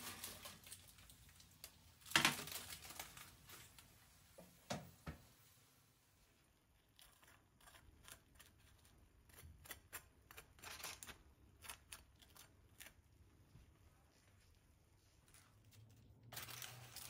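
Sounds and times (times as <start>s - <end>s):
faint kitchen clicks and taps: 0.4s - 5.5s.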